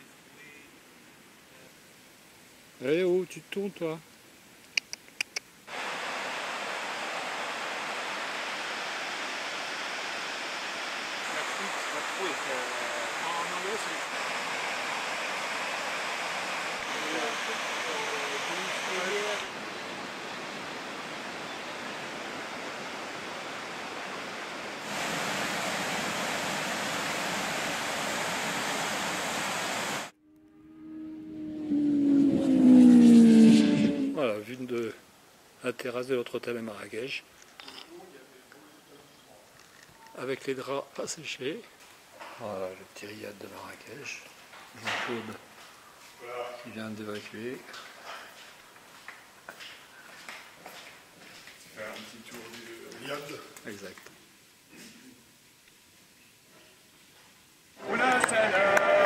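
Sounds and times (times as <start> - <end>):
waterfall rushing: 5.7 - 30.1
steady pitched tone: 30.1 - 34.2.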